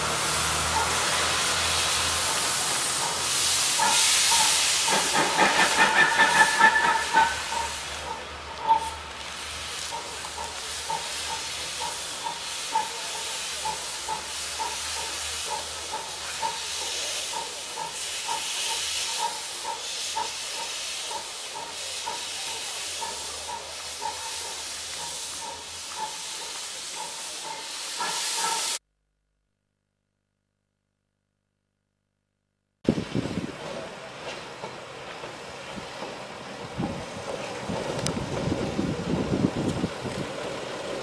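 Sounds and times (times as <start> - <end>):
steam hissing: 0.0 - 28.8
steam train beat: 0.0 - 28.8.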